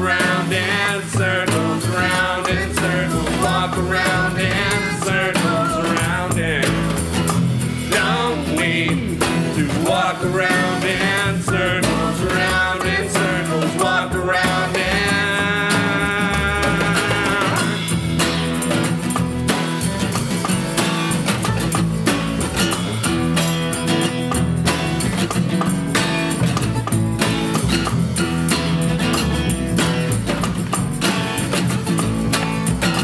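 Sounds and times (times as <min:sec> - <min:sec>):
person singing: 0:00.0 - 0:07.0, 0:07.8 - 0:18.0
plucked double bass: 0:00.0 - 0:33.0
strummed acoustic guitar: 0:00.0 - 0:33.0.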